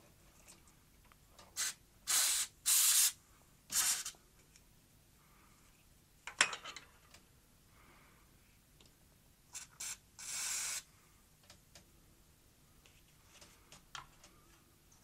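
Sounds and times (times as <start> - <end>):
aerosol can spraying: 1.6 - 4.2, 9.6 - 10.9.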